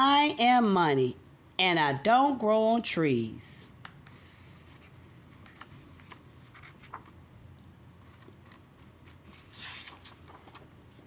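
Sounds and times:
paper rustling: 4.1s - 7.2s, 8.0s - 11.0s.

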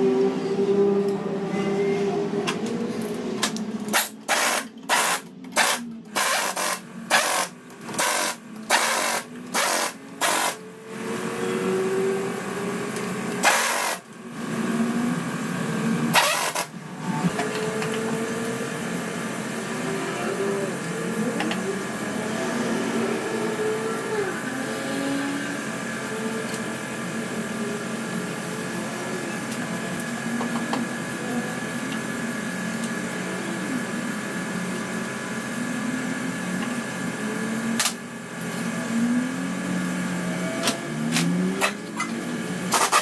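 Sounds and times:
pneumatic impact wrench bursts: 3.9s - 10.6s, 13.4s - 14.1s, 16.1s - 16.8s, 42.7s - 43.0s.

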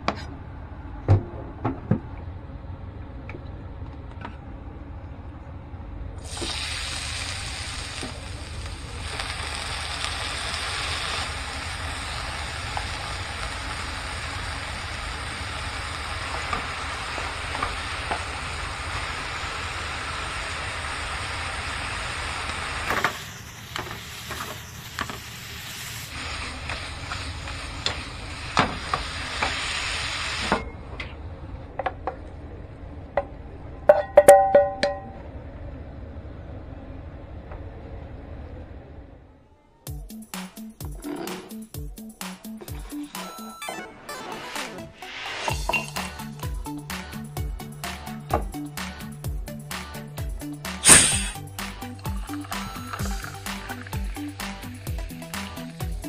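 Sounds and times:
vegetables sizzling in hot oil: 6.2s - 30.5s, 50.8s - 56.0s.

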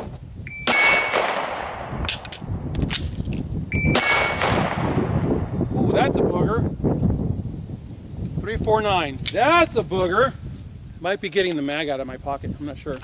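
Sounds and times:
steel target ringing: 0.6s - 1.6s, 3.8s - 4.8s
gunshots: 0.7s - 2.3s, 3.9s - 5.1s
magazine reload clicks: 2.0s - 3.2s.

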